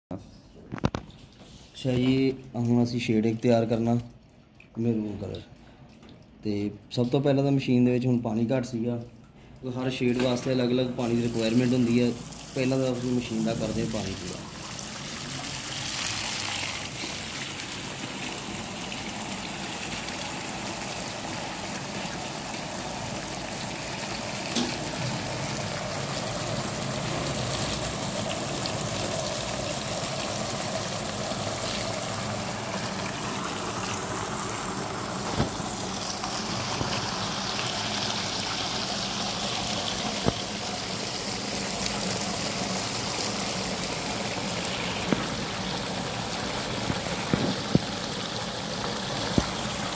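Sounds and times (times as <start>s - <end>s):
water gushing from hose: 10.9s - 49.9s.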